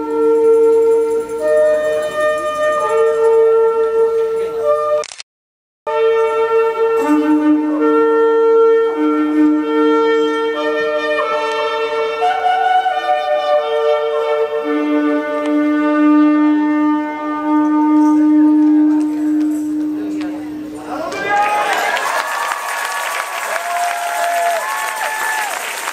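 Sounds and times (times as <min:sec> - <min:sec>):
ram's horn blown in long notes: 0:00.0 - 0:05.0, 0:05.9 - 0:20.7.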